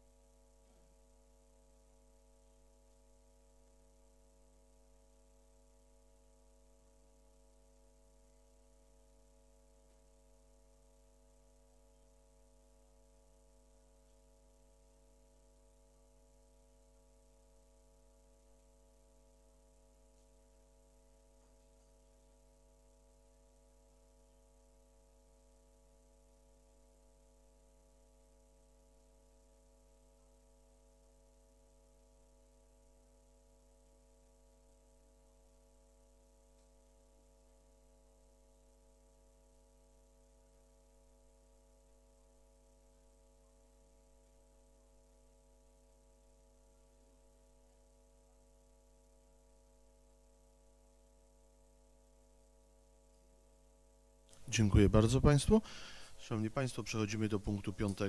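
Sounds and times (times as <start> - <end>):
steady electrical hum: 0.0 - 58.0
faint hiss: 54.3 - 58.0.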